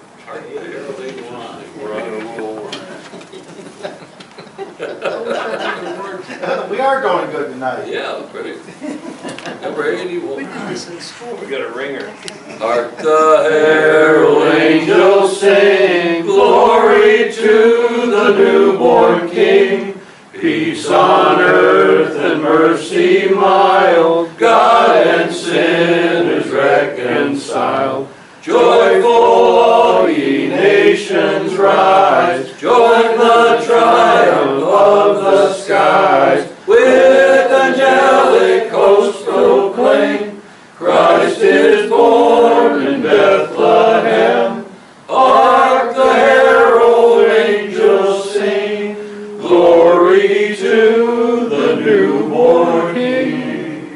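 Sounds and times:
congregation singing a hymn: 13.0 - 53.9.

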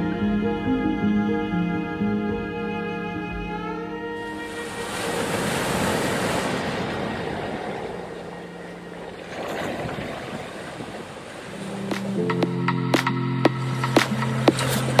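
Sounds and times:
waves washing on beach: 4.2 - 15.0.

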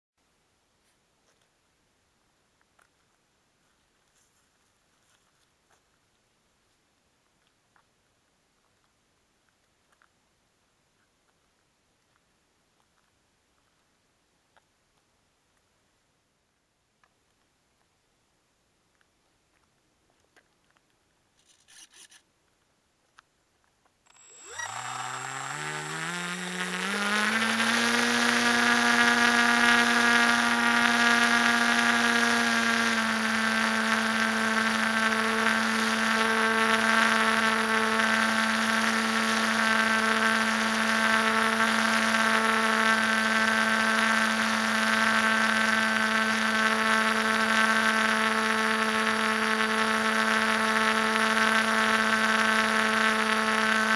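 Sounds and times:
electric motor propeller whine: 24.1 - 53.9.

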